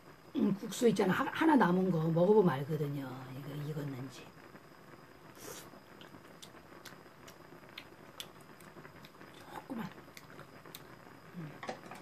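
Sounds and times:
faint chewing and mouth clicks: 5.4s - 11.0s.

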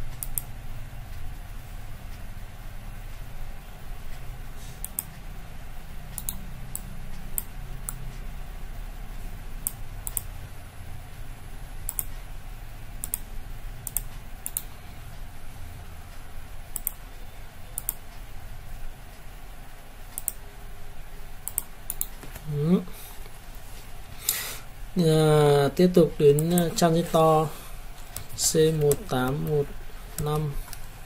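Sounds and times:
low room hum: 0.0s - 31.0s
mouse and keyboard clicks: 28.0s - 30.8s.

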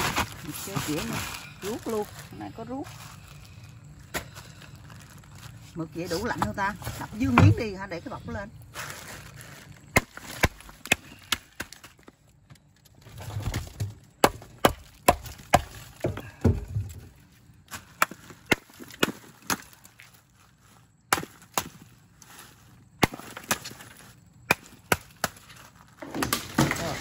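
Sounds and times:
plastic bags rustling: 0.0s - 12.3s, 14.9s - 24.4s
ice being smashed: 21.1s - 21.9s, 23.0s - 27.0s.

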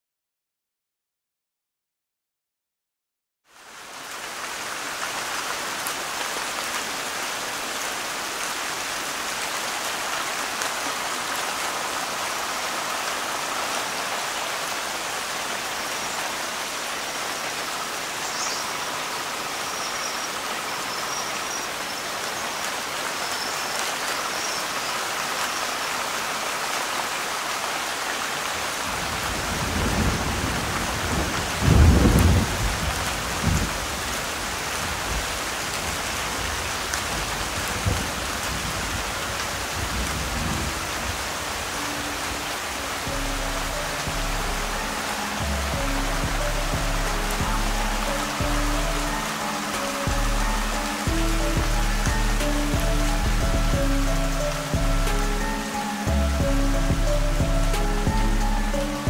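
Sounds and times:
rain on foliage and water: 3.4s - 59.0s
low thunder rumble: 29.3s - 33.8s.

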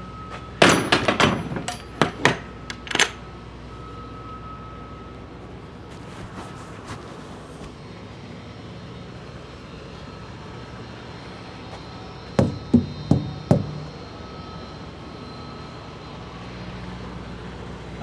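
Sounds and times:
diesel truck engine idling: 7.3s - 18.0s
hard knocks: 12.4s - 14.0s.

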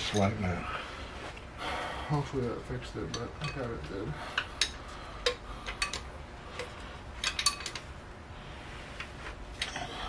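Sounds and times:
metal tools clinking on engine: 0.0s - 0.4s, 3.1s - 3.9s, 5.7s - 7.8s.

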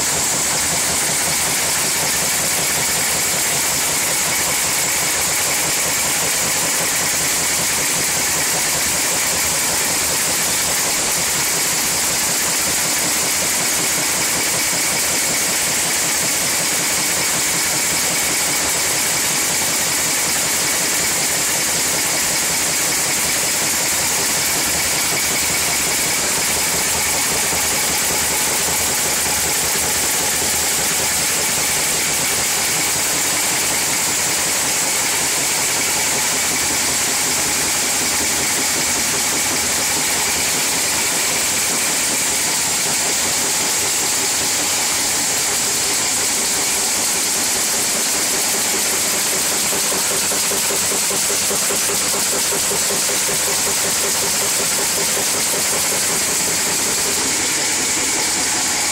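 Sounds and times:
insertion machine running: 14.4s - 58.9s.

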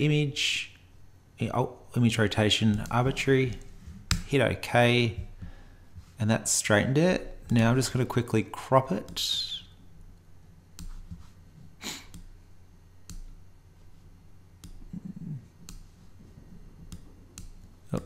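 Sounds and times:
computer mouse clicks: 15.6s - 15.9s.

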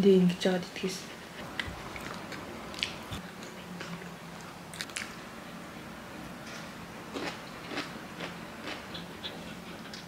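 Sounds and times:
person chewing food: 1.4s - 5.2s, 7.1s - 10.0s.

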